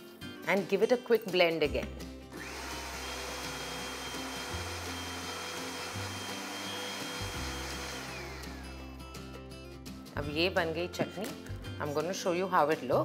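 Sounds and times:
blender running: 2.3 - 9.1.

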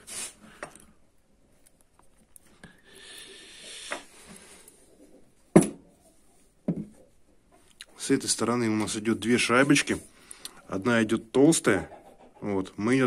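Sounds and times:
hissy scraping: 0.0 - 0.6.

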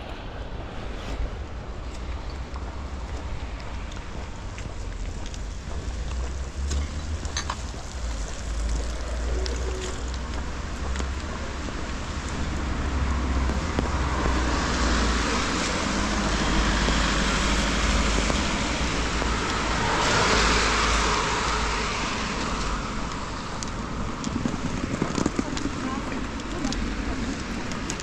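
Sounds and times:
tyres hissing on wet road: 0.1 - 28.0.

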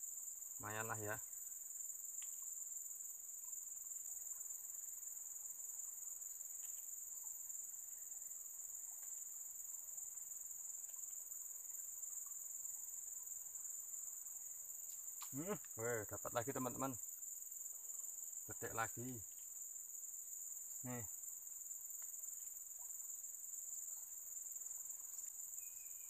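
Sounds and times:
insect chorus drone: 0.0 - 26.0
faint ticks: 2.1 - 2.5, 6.5 - 7.4, 8.8 - 9.2, 14.8 - 15.8, 21.9 - 23.0.

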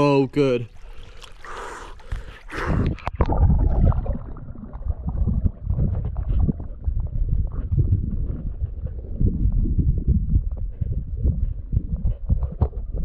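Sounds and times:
river water splashing: 0.1 - 4.6
muffled underwater rumble: 2.0 - 13.0
dull underwater knocks and scrapes: 10.3 - 13.0.

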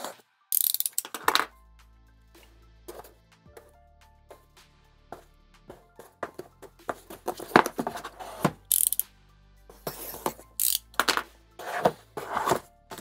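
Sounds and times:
background music: 0.0 - 13.0
cardboard knocks and clicks: 6.2 - 8.6
cardboard sliding on cardboard: 6.3 - 8.6, 11.6 - 13.0.

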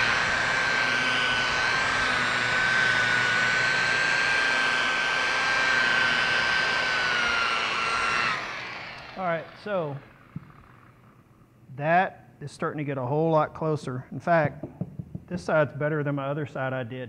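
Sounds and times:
electric polisher motor whine: 0.0 - 11.1.

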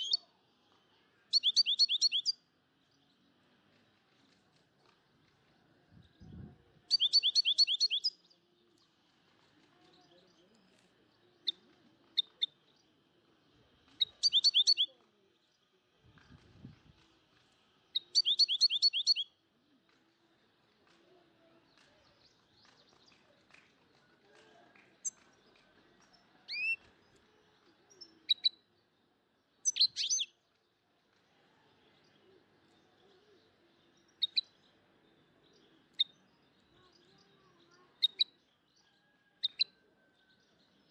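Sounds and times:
bird chirping: 1.3 - 2.4, 6.0 - 8.3, 14.0 - 15.0, 17.9 - 19.3, 29.5 - 30.4, 32.0 - 40.9.

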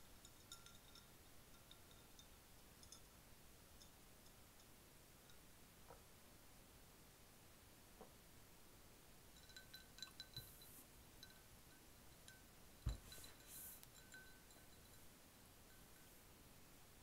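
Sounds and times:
glass set down on table: 12.9 - 13.4.

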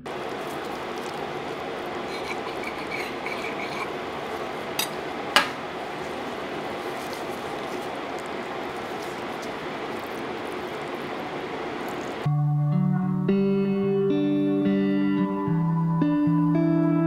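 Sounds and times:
background hiss: 0.0 - 12.3.

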